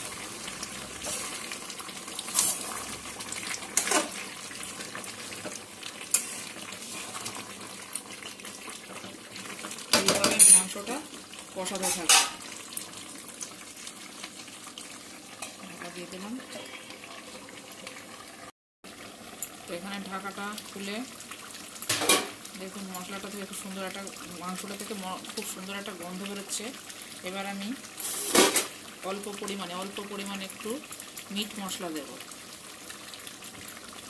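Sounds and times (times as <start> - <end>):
food sizzling in a pan: 0.0 - 34.0
metal spatula scraping a pan: 2.2 - 2.8, 3.8 - 4.2, 6.1 - 7.4.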